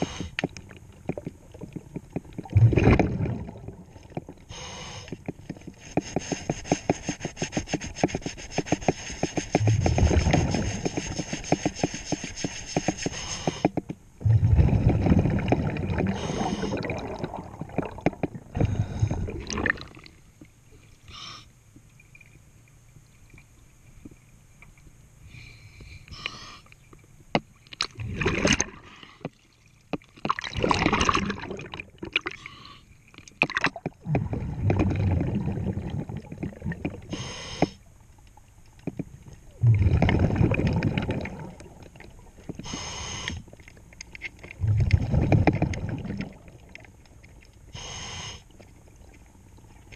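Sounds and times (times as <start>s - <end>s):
regulator inhale hiss: 0.0s - 0.4s, 4.5s - 5.2s, 5.8s - 13.8s, 16.1s - 16.8s, 21.1s - 21.6s, 25.2s - 26.8s, 37.1s - 37.8s, 42.6s - 43.5s, 47.7s - 48.5s
exhaust bubbles rushing: 2.5s - 3.8s, 14.2s - 20.1s, 30.4s - 32.1s, 34.0s - 37.0s, 39.6s - 41.8s, 44.6s - 46.6s.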